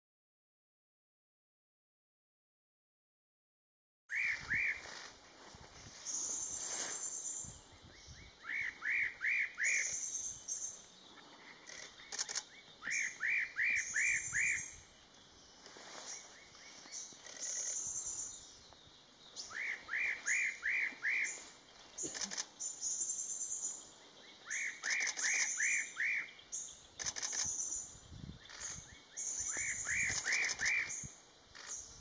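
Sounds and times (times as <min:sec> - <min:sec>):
bird whistled song phrases: 0:04.1 - 0:04.8.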